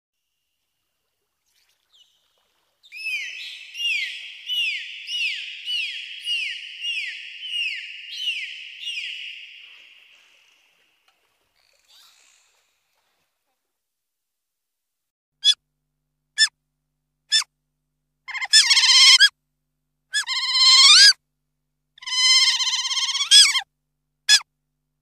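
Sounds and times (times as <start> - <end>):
dolphin whistling chirps: 2.8 - 10.8.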